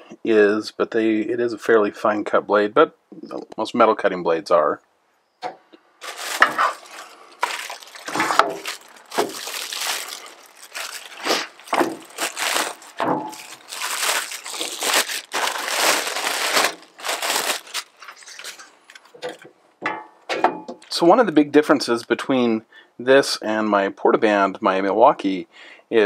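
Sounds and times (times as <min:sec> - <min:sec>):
plastic bag crinkling: 0:06.0 - 0:19.4.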